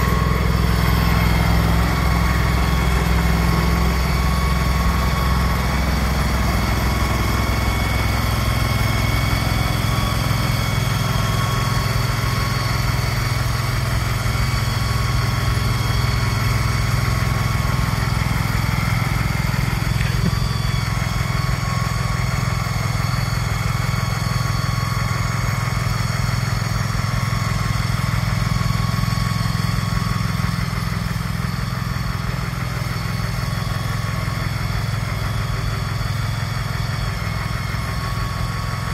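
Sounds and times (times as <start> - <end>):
small engine running under load: 0.0 - 38.9
steady whine: 0.0 - 38.9.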